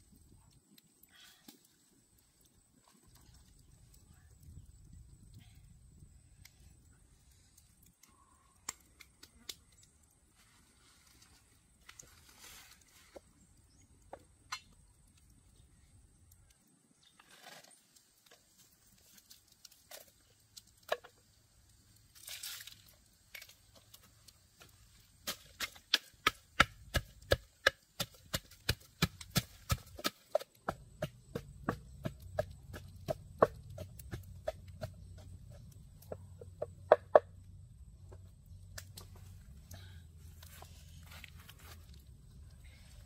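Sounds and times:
pestle pounding in wooden mortar: 25.2 - 37.3.

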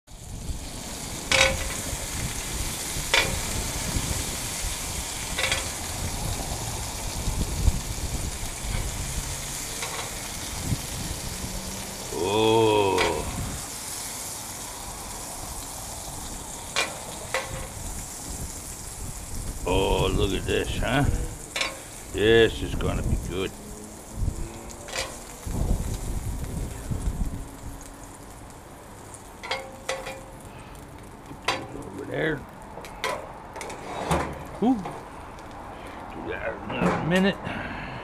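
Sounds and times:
meat sizzling on griddle: 0.1 - 36.0
metal tongs clacking: 1.3 - 1.8, 5.4 - 5.8, 21.5 - 21.8, 24.9 - 25.3, 29.4 - 30.3
brief vocal sound: 12.1 - 13.5.

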